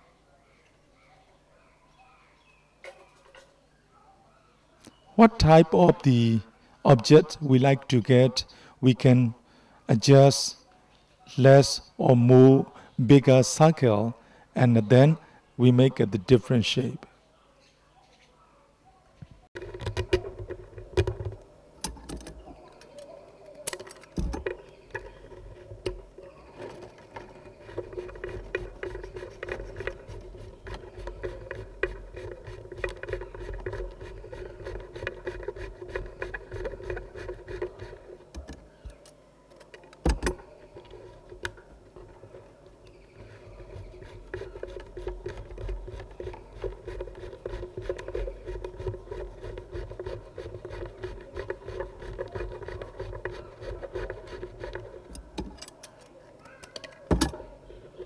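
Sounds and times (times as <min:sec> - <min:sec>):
bamboo strips rubbing and clicking: 0:19.6 - 0:58.0.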